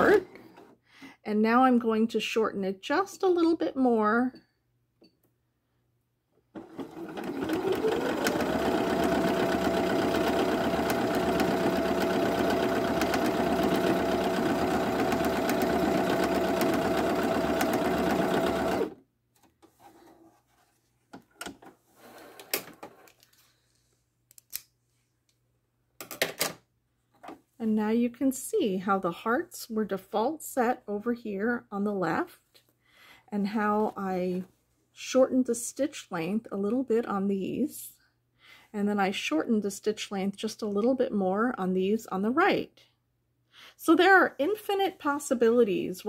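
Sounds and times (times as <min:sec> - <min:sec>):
sewing machine motor whirring: 0:06.6 - 0:19.0.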